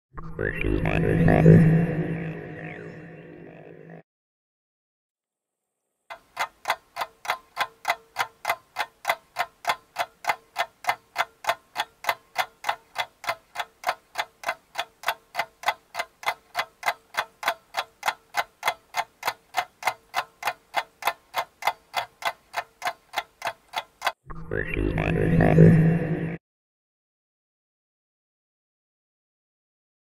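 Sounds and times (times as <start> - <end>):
clock ticking: 6.1 - 24.2.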